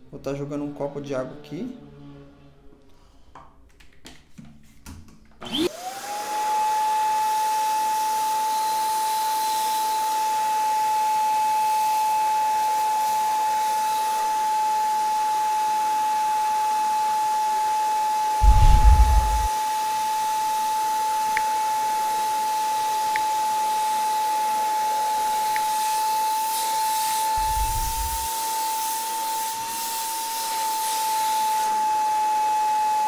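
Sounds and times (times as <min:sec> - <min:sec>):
vacuum cleaner running: 0:05.4 - 0:10.0, 0:25.3 - 0:29.9.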